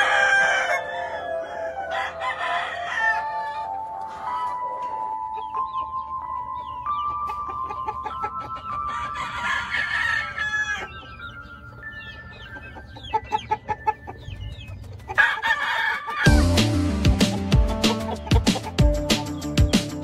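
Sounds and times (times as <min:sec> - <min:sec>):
rooster crowing: 0:00.0 - 0:03.7, 0:08.8 - 0:11.0, 0:15.2 - 0:16.4
chicken clucking: 0:00.0 - 0:20.0
faint music with held notes: 0:00.0 - 0:20.0.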